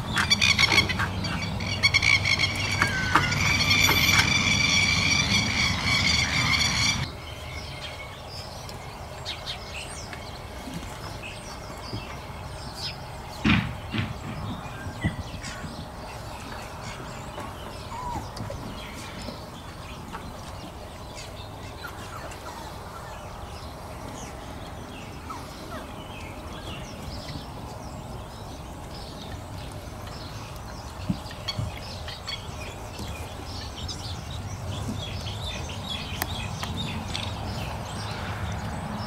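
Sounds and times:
puppies squeaking and yipping: 0.0s - 7.1s, 17.8s - 19.1s, 21.8s - 23.3s.

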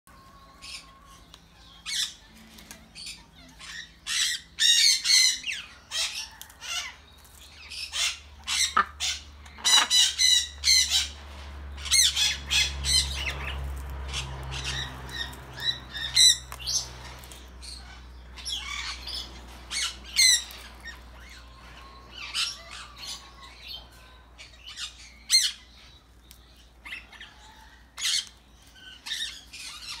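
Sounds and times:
cockatoo squawking: 7.9s - 11.2s.

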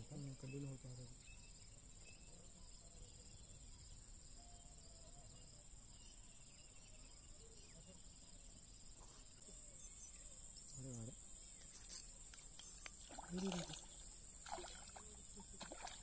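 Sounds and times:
faint cricket chirps: 0.0s - 16.0s
high-pitched insect drone: 9.9s - 16.0s.

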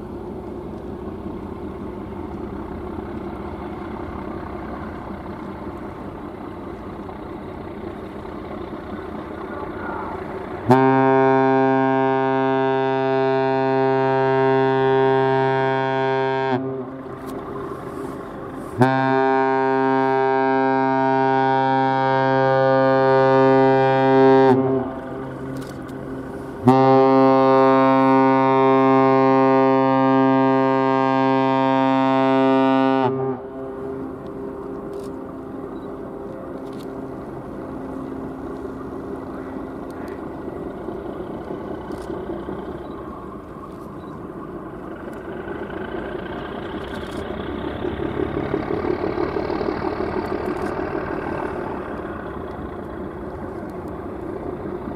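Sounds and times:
low engine rumble: 0.0s - 54.9s
ship steam whistle blasts: 10.7s - 16.8s, 18.8s - 24.9s, 26.6s - 33.6s.

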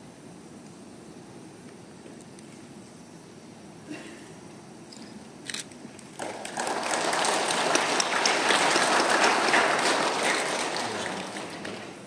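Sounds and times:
audience applause: 6.1s - 12.0s.

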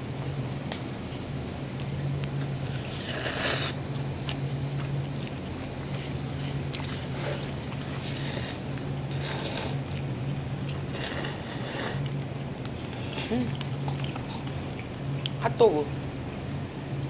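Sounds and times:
steady low hum: 0.0s - 17.0s
noodles being slurped: 2.7s - 3.8s, 10.8s - 12.1s.

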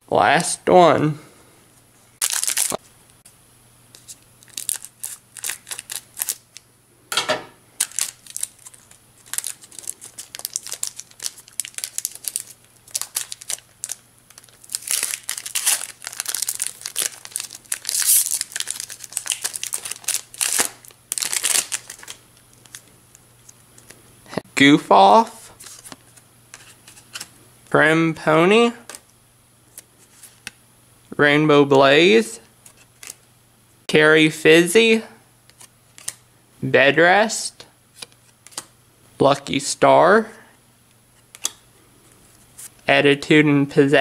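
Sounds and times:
foil wrapper crinkling: 2.2s - 2.8s, 3.9s - 6.6s, 7.8s - 24.0s, 35.5s - 36.2s.

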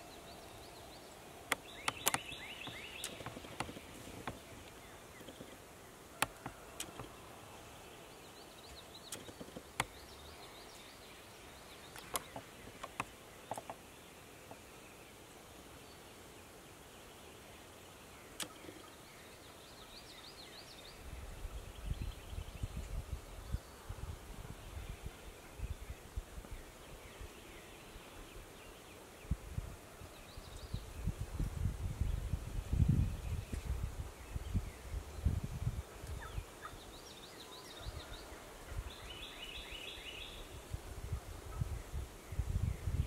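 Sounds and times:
faint distant songbird calls: 0.0s - 43.0s.

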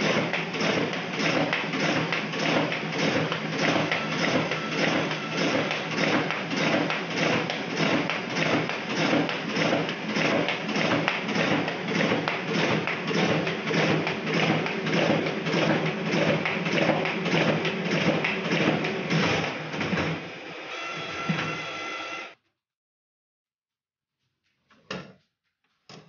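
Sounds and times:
duplicator thumping sheets: 0.0s - 20.2s.

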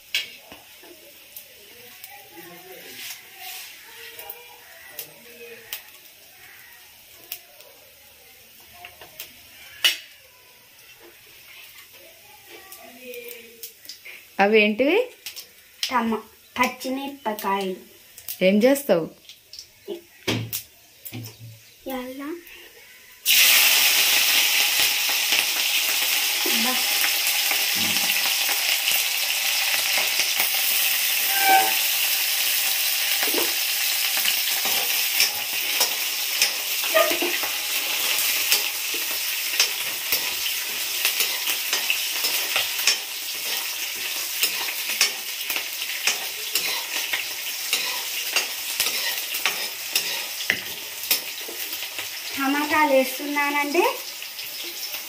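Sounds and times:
chillies sizzling in hot oil: 0.0s - 55.0s
metal ladle scraping pan: 31.0s - 32.2s, 39.5s - 51.6s.

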